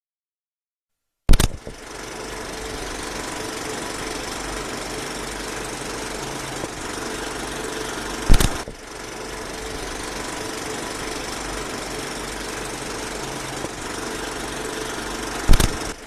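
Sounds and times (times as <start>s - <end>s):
loud sudden thump: 1.3s - 1.8s
mechanical rattling: 1.3s - 16.0s.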